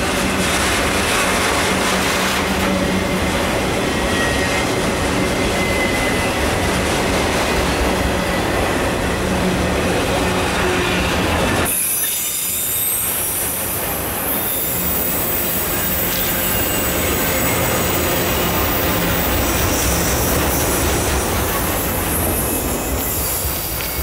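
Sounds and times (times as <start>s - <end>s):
steel wheels rumbling on rail: 0.0s - 24.0s
wheels squealing and hissing: 10.1s - 24.0s.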